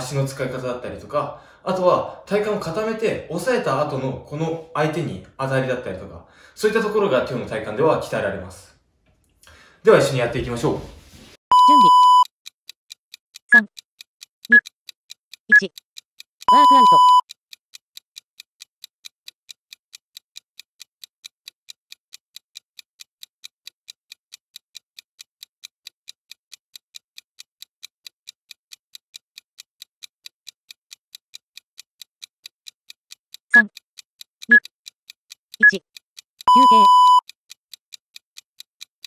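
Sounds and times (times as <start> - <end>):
timer ticking: 5.9 - 7.6, 11.5 - 39.0.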